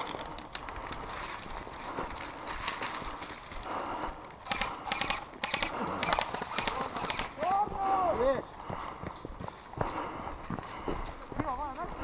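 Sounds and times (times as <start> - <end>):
footsteps crunching on gravel: 7.3 - 12.0.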